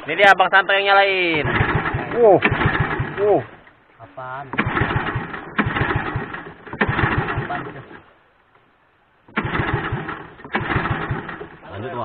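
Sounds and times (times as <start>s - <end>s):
boat engine turning over: 1.1s - 3.8s, 4.4s - 8.1s, 9.2s - 12.0s.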